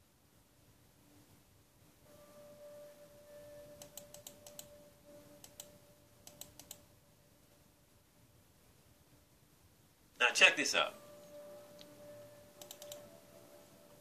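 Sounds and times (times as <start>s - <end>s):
faint steady tone: 0.0s - 14.0s
computer mouse clicks: 3.8s - 4.7s, 5.4s - 6.8s, 12.6s - 13.0s.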